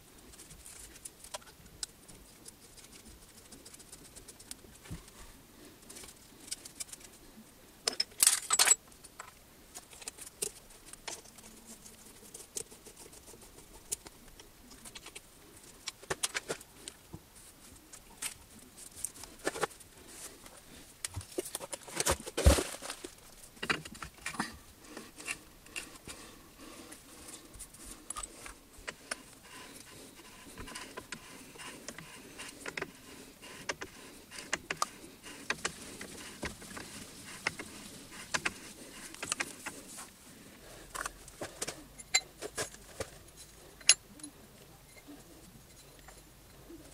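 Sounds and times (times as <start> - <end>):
metal parts clattering: 7.9 - 8.8
metal tools clinking on tables: 7.9 - 8.8.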